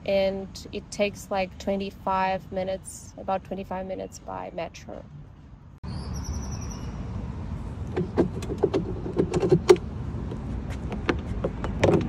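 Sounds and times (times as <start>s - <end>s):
street traffic rumble: 0.0s - 12.0s
sharp clicks and knocks: 7.8s - 12.0s.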